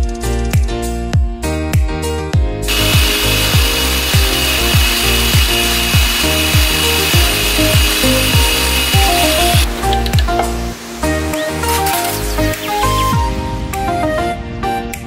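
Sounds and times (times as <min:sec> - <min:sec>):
background music with steady beat: 0:00.0 - 0:15.0
food processor motor whine: 0:02.7 - 0:10.2.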